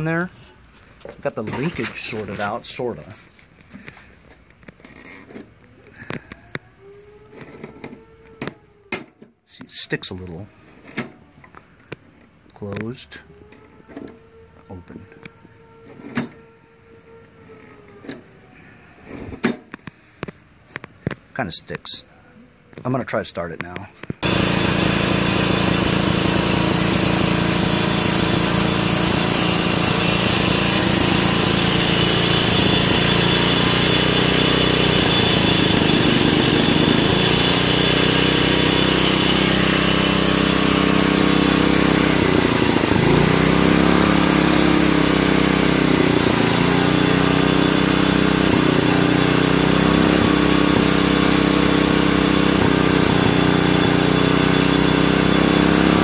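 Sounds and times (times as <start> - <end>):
lawn tractor engine running: 24.2 - 56.0.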